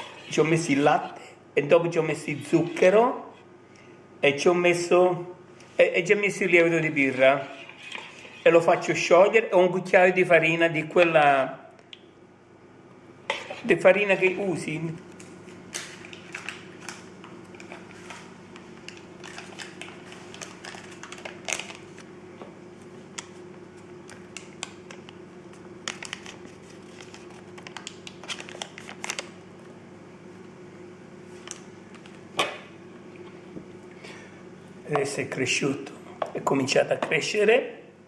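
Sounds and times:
faint steady hum: 0:00.0 - 0:38.0
paper sachet crinkling: 0:19.2 - 0:22.0, 0:25.9 - 0:29.4.

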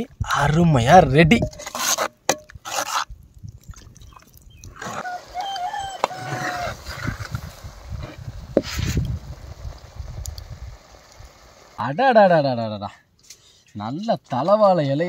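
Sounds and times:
wooden ladle scraping a pot: 0:01.4 - 0:03.1
wavering animal call: 0:04.8 - 0:07.1.

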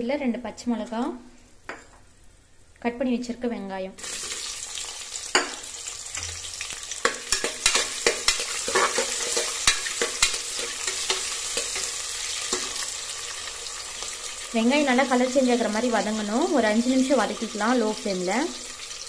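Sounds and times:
onions sizzling in hot oil: 0:04.0 - 0:19.0
ladle scraping and clicking on pot: 0:07.0 - 0:11.9.

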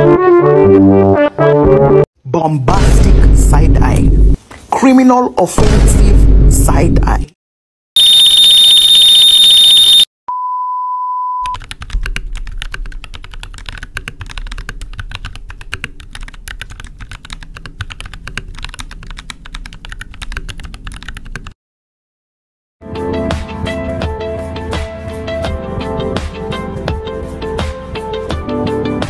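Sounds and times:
steady beep: 0:08.0 - 0:11.6
keyboard typing clicks: 0:11.4 - 0:21.4.

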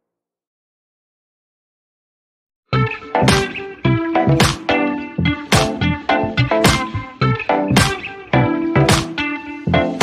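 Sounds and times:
background music with beat: 0:02.8 - 0:10.0.

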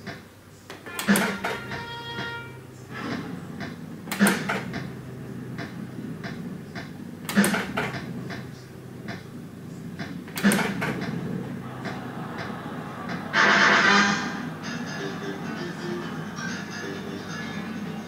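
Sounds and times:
fruit machine reels clacking: 0:00.0 - 0:05.0, 0:05.6 - 0:09.3, 0:10.0 - 0:13.3
steady low hum: 0:00.0 - 0:18.0.

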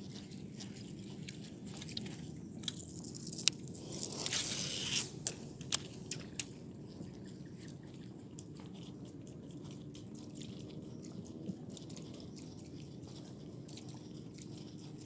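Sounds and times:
fishing reel whirring: 0:04.0 - 0:05.9.

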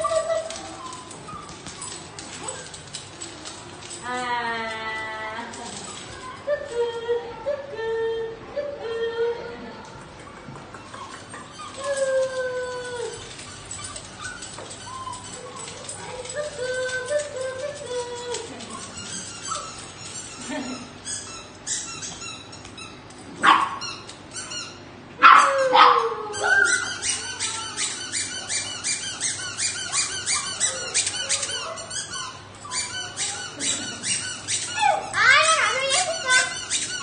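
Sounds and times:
puppy yelps: 0:00.0 - 0:03.0, 0:10.8 - 0:37.0
puppies yapping and barking: 0:00.0 - 0:04.0, 0:05.5 - 0:07.4, 0:10.1 - 0:37.0.

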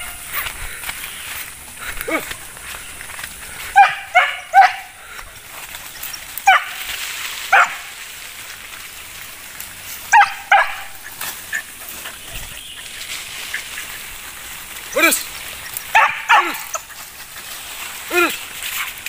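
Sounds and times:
dog barking sharply: 0:03.8 - 0:04.9, 0:10.1 - 0:11.0, 0:15.9 - 0:16.8.

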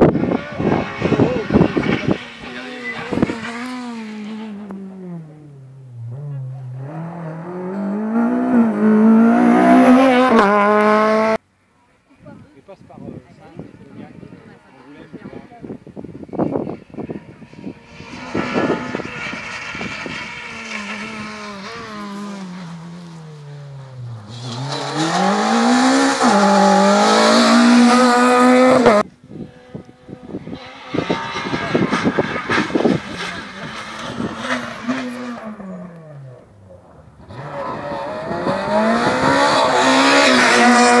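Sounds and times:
rally car driving past: 0:16.4 - 0:41.0.

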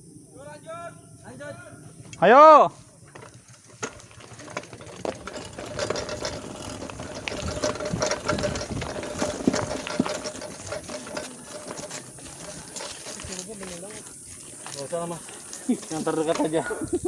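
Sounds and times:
bike rattling over rocks: 0:03.0 - 0:17.0
freewheel ticking: 0:03.2 - 0:16.6.

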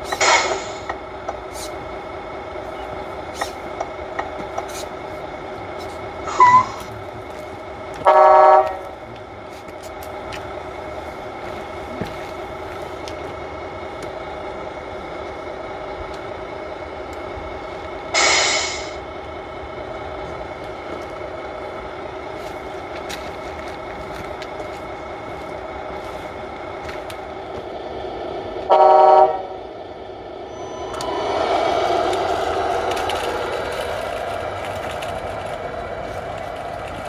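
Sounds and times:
loud hiss: 0:18.2 - 0:19.0
horn blast: 0:28.7 - 0:29.6.

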